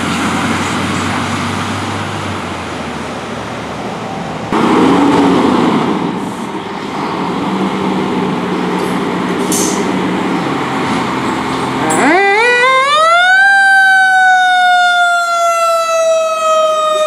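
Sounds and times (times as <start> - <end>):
air hiss: 9.4 - 9.9.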